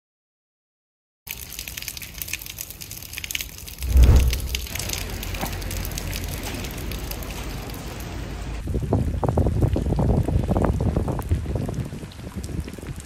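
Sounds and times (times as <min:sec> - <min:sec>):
rain pattering: 0:01.3 - 0:13.0
wind buffeting microphone: 0:03.8 - 0:05.0.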